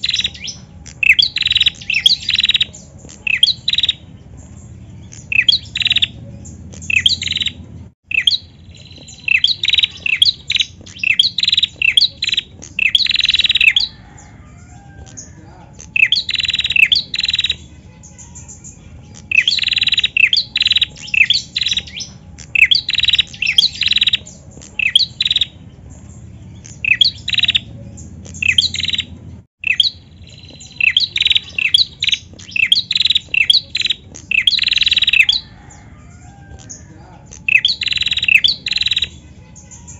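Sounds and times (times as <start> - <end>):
bird chirping: 0.0 - 39.9.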